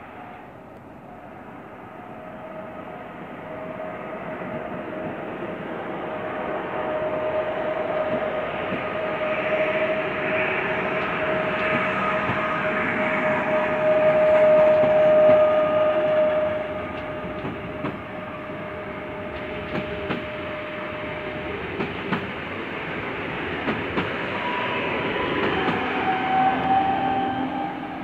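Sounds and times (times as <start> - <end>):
train rolling noise: 0.0 - 28.0
train wheels clacking over rail joints: 10.2 - 13.2, 13.8 - 18.2, 19.2 - 20.5, 21.7 - 22.4, 23.6 - 24.3, 25.4 - 26.5.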